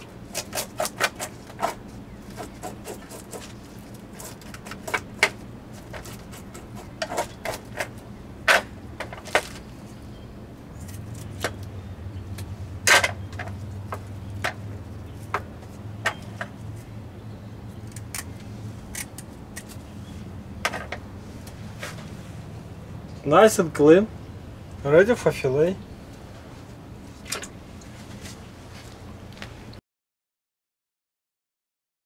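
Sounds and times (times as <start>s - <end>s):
steady low hum: 0.0s - 29.8s
knife scraping fish: 0.3s - 8.0s
shears snipping: 0.3s - 9.8s, 10.8s - 16.9s, 17.8s - 22.2s.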